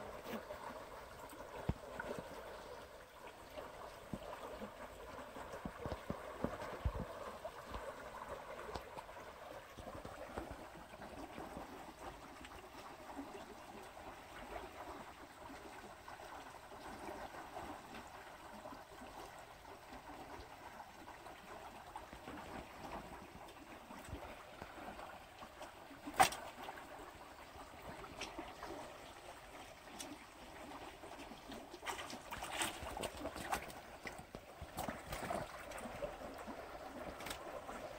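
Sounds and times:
water splashing: 22.0s - 37.9s.

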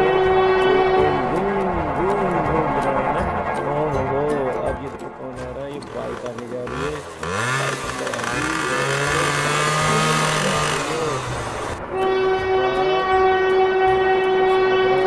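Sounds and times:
train horn: 0.0s - 1.7s, 8.4s - 15.0s.

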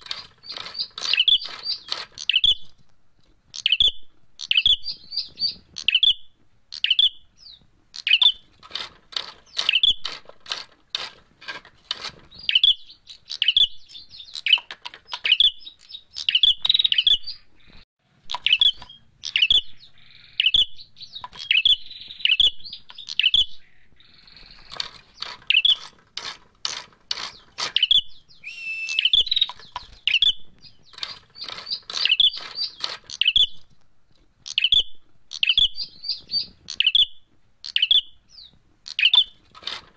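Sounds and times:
bird chirping sharply: 3.6s - 8.4s, 12.3s - 17.8s, 18.4s - 25.8s, 27.3s - 33.6s, 34.5s - 39.4s
sharp clicks: 28.8s - 34.7s.

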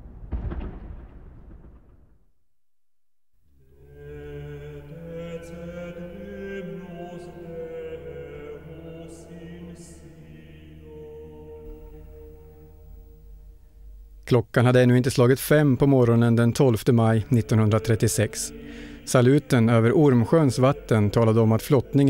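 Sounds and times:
slow soundtrack music: 3.5s - 14.3s, 15.2s - 22.0s
sustained chant-like voices: 3.6s - 13.5s, 14.7s - 22.0s
low drone: 17.2s - 22.0s.

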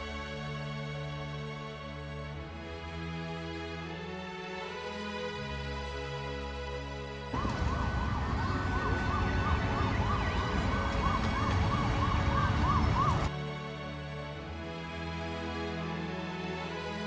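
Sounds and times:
street traffic noise: 7.3s - 13.3s
siren yelping: 7.4s - 13.3s.

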